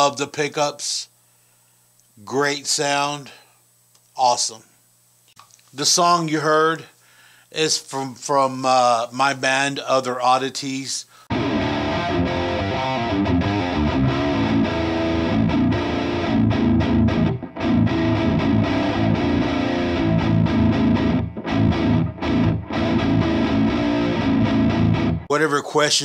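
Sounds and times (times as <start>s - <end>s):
distorted electric guitar riffing: 11.3s - 25.3s.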